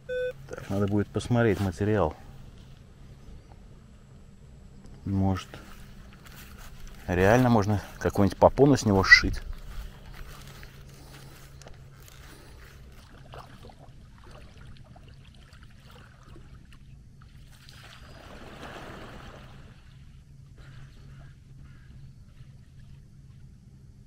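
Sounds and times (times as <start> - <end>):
swimming splashes: 12.2 - 22.9
swimmer diving into water: 17.5 - 20.1.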